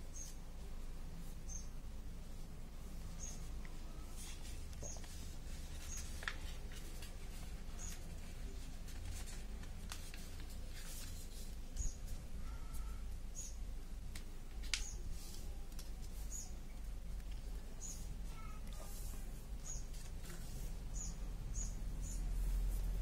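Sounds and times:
paper rustling and crinkling: 0:04.1 - 0:12.2, 0:14.1 - 0:16.3, 0:19.9 - 0:20.8.

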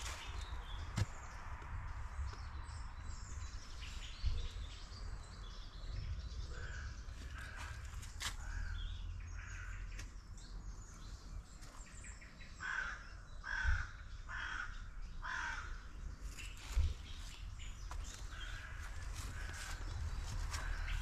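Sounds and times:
crow cawing: 0:09.4 - 0:09.8, 0:12.6 - 0:15.8.

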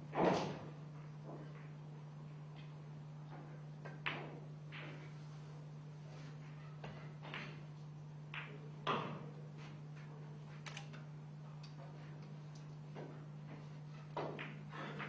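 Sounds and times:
pool balls knocking: 0:08.3 - 0:09.3, 0:12.9 - 0:15.0.

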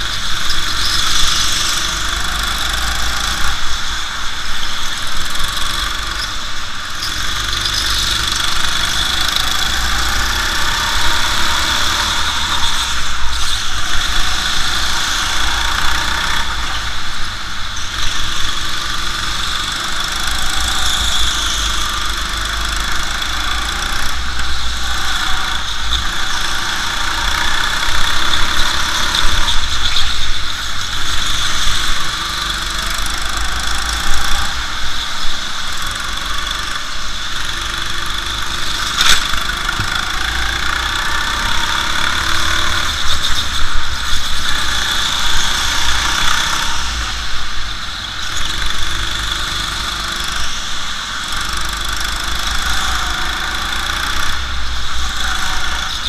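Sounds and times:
go-kart engine racing: 0:00.0 - 0:56.0.

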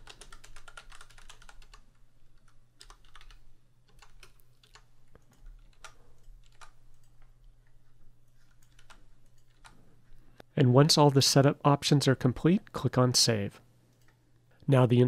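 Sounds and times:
computer keyboard typing: 0:00.0 - 0:09.8.

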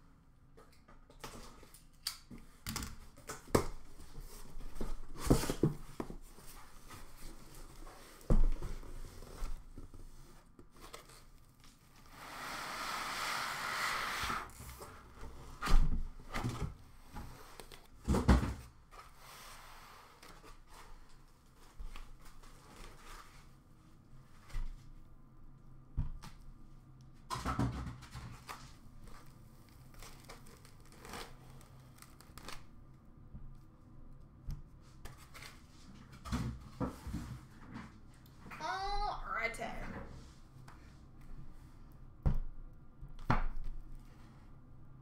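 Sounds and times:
cardboard rustling: 0:03.9 - 0:12.1.

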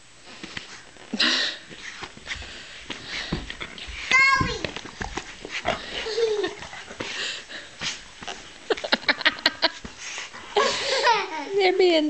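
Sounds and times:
dog snuffling: 0:01.7 - 0:08.9.

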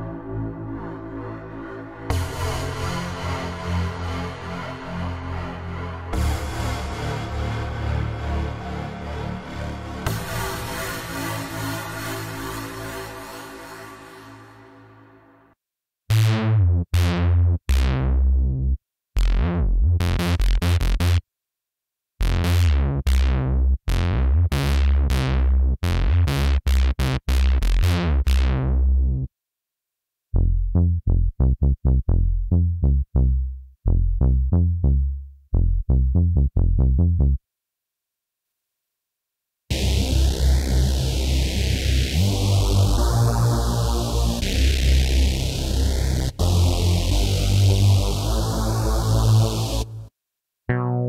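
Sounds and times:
dark plucked synth bass: 0:16.1 - 0:21.2, 0:22.2 - 0:29.3, 0:30.4 - 0:37.4, 0:39.7 - 0:50.1, 0:50.7 - 0:51.0
staccato synthesizer bass notes: 0:16.1 - 0:21.2, 0:22.2 - 0:29.3, 0:30.4 - 0:37.4, 0:39.7 - 0:50.1, 0:50.7 - 0:51.0.

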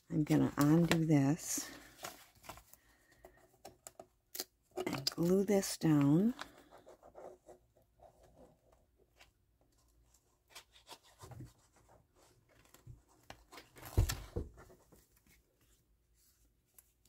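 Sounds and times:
paper rustling: 0:00.5 - 0:03.4.

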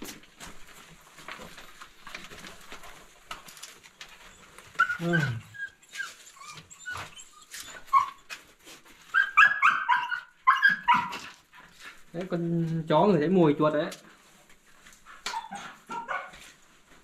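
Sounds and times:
dog whining and yelping: 0:03.9 - 0:11.7, 0:15.1 - 0:16.4.

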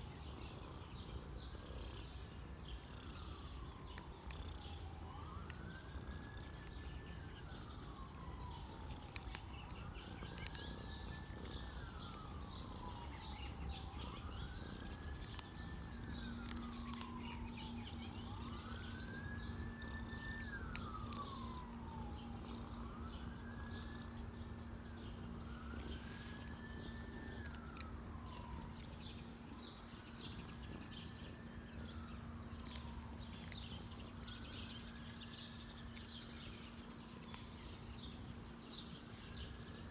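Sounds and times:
cat purring: 0:00.0 - 0:35.2
steady low hum: 0:00.0 - 0:39.9
siren wailing: 0:02.9 - 0:39.1.

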